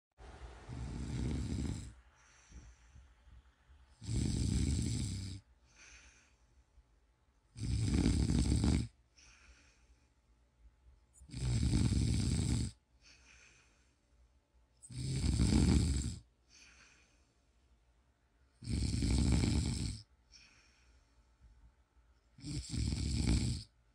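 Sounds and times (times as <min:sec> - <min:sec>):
man snoring: 0:00.7 - 0:02.0, 0:04.0 - 0:05.5, 0:07.6 - 0:09.0, 0:11.2 - 0:12.8, 0:14.8 - 0:16.3, 0:18.6 - 0:20.1, 0:22.4 - 0:23.7
soft breath out: 0:01.8 - 0:03.6, 0:05.6 - 0:06.8, 0:09.1 - 0:10.3, 0:13.0 - 0:14.2, 0:16.4 - 0:17.6, 0:20.2 - 0:21.5.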